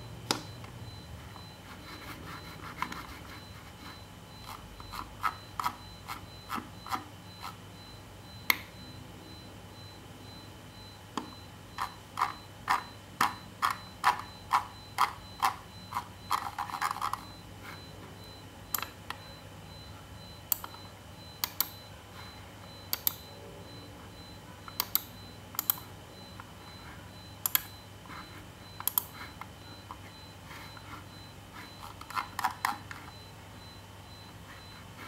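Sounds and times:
computer mouse clicking: 21.4s - 21.8s, 22.9s - 23.2s, 24.7s - 25.8s, 27.4s - 27.7s, 28.8s - 29.2s.

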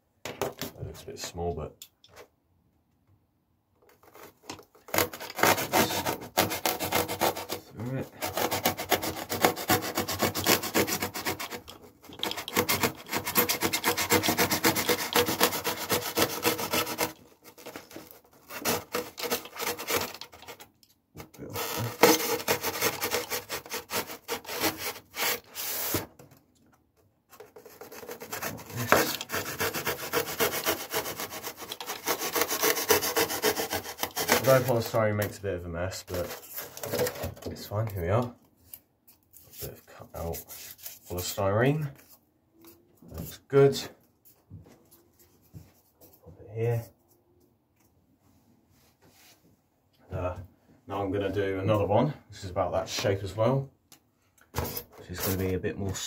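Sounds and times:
foam block being cut rasping: 4.8s - 20.6s, 21.5s - 26.1s, 27.6s - 34.9s.

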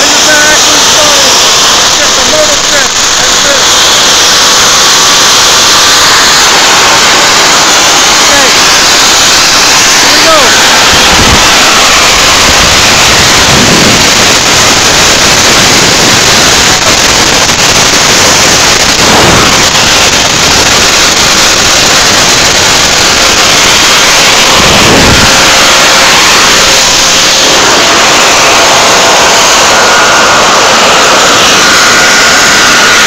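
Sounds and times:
faint steady whine: 0.0s - 33.0s
jet engine roar: 0.0s - 33.0s.

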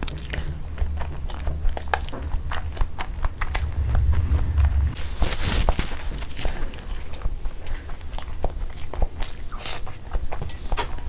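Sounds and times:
chewing with mouth clicks: 0.0s - 3.7s, 7.1s - 11.0s.

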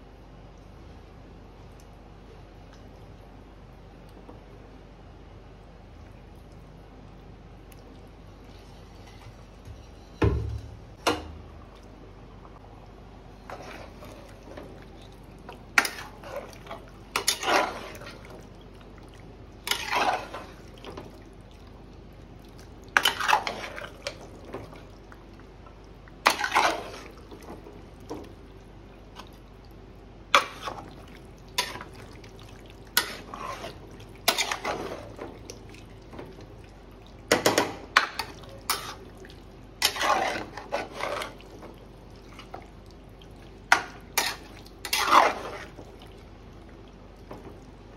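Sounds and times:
liquid sloshing: 13.3s - 47.9s
utensil scraping in pot: 13.4s - 14.6s, 15.8s - 18.2s, 19.6s - 20.7s, 23.0s - 24.2s, 26.2s - 27.2s, 30.3s - 30.9s, 31.6s - 32.0s, 33.0s - 35.2s, 37.5s - 39.1s, 39.8s - 41.5s, 43.7s - 45.8s.

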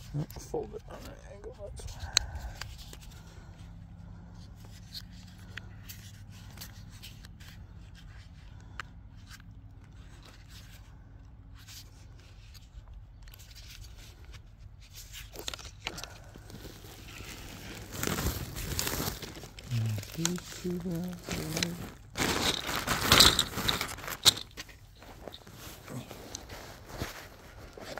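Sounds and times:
low steady hum: 0.0s - 27.9s
plastic tape clicks and scrapes: 11.5s - 21.8s.

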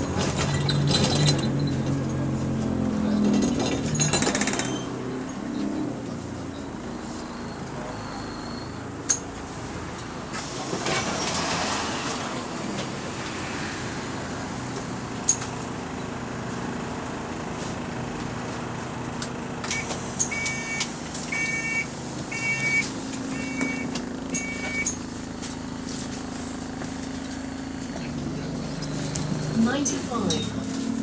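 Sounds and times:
bus engine idling: 0.0s - 11.2s, 12.1s - 31.0s
door warning beeper: 19.7s - 25.0s.

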